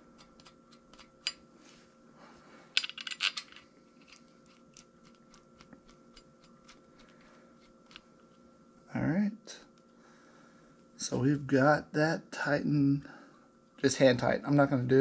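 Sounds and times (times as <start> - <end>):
metal bolts clinking: 2.8 - 4.2.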